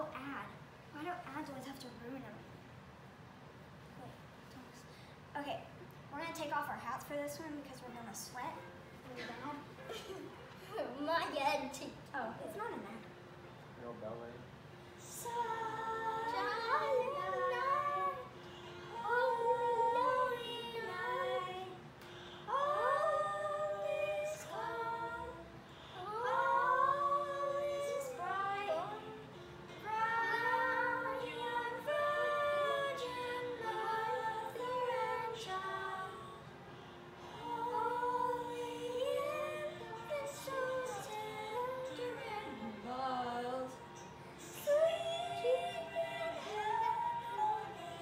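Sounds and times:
girl singing: 0:00.0 - 0:02.2, 0:15.0 - 0:36.6, 0:37.2 - 0:48.0
quiet recorded accompaniment: 0:00.0 - 0:48.0.

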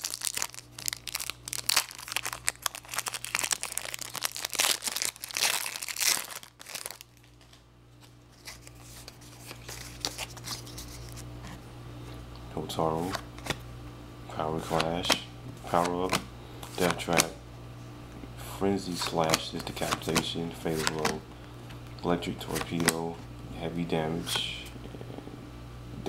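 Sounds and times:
foil wrapper tearing and crinkling: 0:00.0 - 0:07.4
low steady hum: 0:00.0 - 0:26.0.

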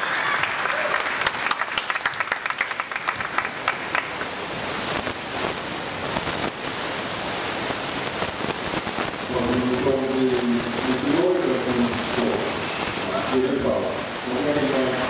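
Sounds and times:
crowd hand clapping: 0:00.0 - 0:04.6
hall background noise: 0:06.1 - 0:15.0.

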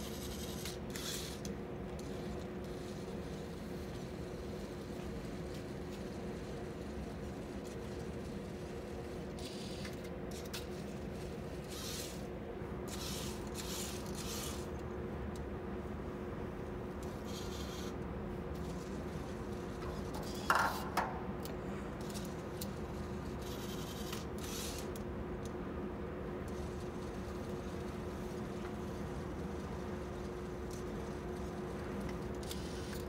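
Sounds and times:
electric motors whirring: 0:00.0 - 0:15.4, 0:16.6 - 0:25.1, 0:26.4 - 0:33.0
steady hum: 0:00.0 - 0:33.0.

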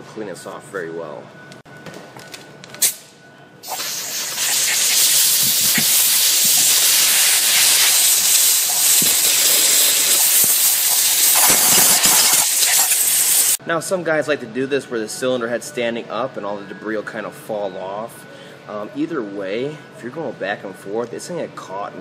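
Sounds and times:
compressed air blow gun hissing: 0:03.6 - 0:13.6.

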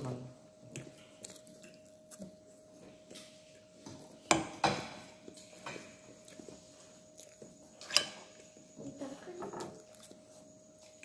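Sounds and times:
fork clinking against plate: 0:07.8 - 0:08.4.

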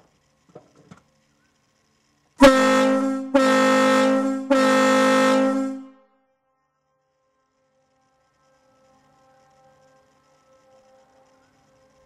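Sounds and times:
ship horn blasts: 0:02.4 - 0:06.1.

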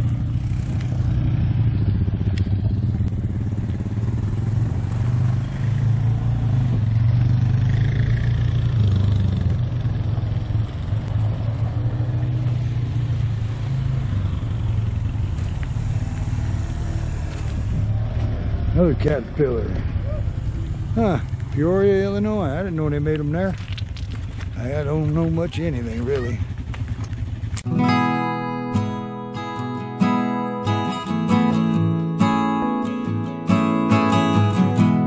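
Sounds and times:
quad bike engine running: 0:00.0 - 0:27.7.

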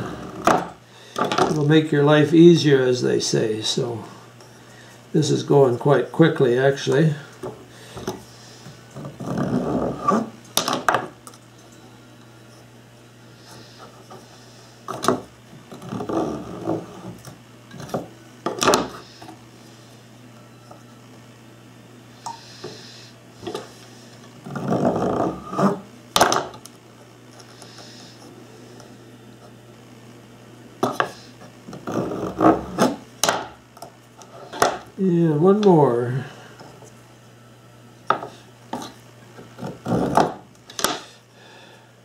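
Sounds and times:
faint low hum: 0:00.0 - 0:42.0
scraping and rubbing on wood: 0:38.1 - 0:41.0.

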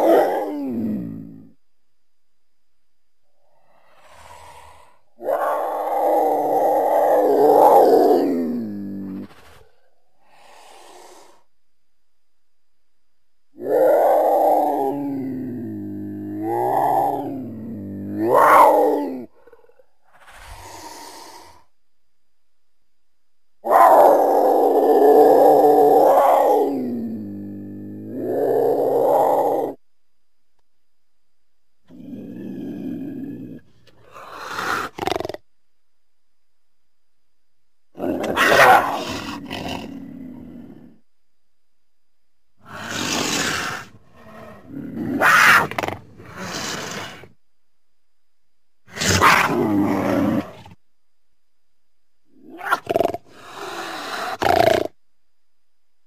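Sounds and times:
cougar harsh drawn-out call: 0:04.0 - 0:09.3, 0:13.6 - 0:21.6, 0:23.6 - 0:29.8, 0:34.0 - 0:35.4, 0:38.0 - 0:40.2, 0:42.6 - 0:47.4, 0:48.9 - 0:50.8, 0:52.5 - 0:54.9
mountain lion calling: 0:38.0 - 0:40.2.

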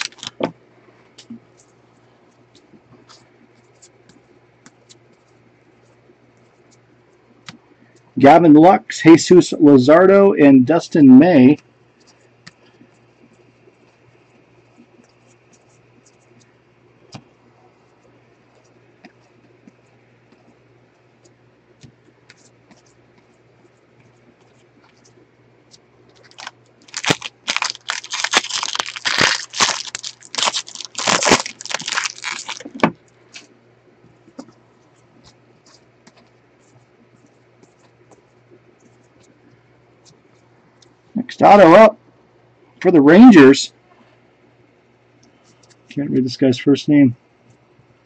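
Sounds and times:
foil wrapper tearing and crackling: 0:00.0 - 0:00.4, 0:26.2 - 0:33.5.

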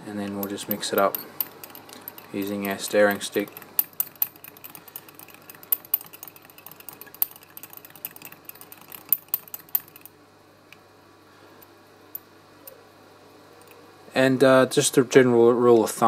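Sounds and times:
metal stick clinking in glass jar: 0:00.3 - 0:10.1.

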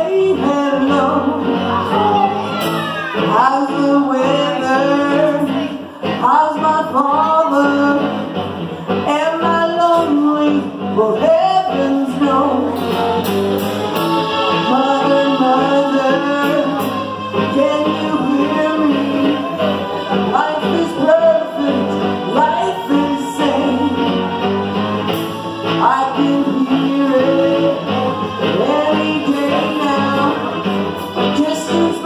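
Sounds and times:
woman singing: 0:00.0 - 0:02.3, 0:03.1 - 0:08.3, 0:08.9 - 0:13.2, 0:14.1 - 0:24.4, 0:25.6 - 0:32.0
bass guitar: 0:00.0 - 0:32.0
drums: 0:00.0 - 0:32.0
electric guitar: 0:00.0 - 0:32.0
keyboard: 0:00.0 - 0:32.0.

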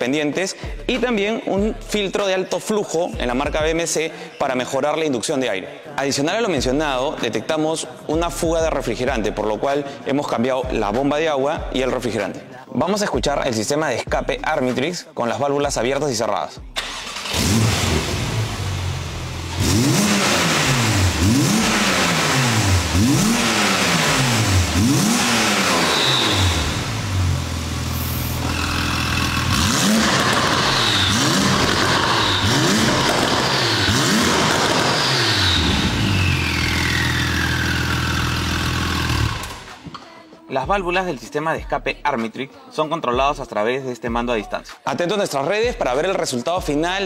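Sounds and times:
car engine revving: 0:16.8 - 0:39.8
high whistles: 0:25.7 - 0:26.8.

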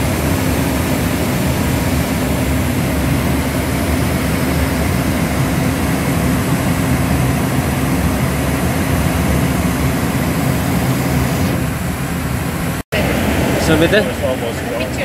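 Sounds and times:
jet engine rumble: 0:00.0 - 0:15.0.

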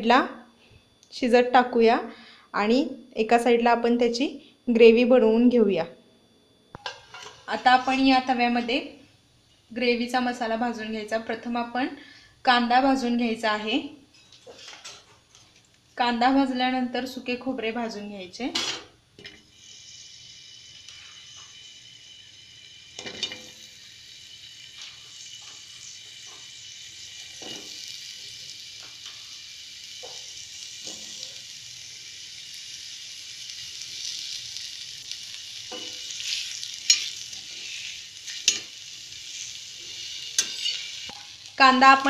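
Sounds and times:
onion sizzling in hot oil: 0:06.9 - 0:08.9, 0:19.2 - 0:42.0.

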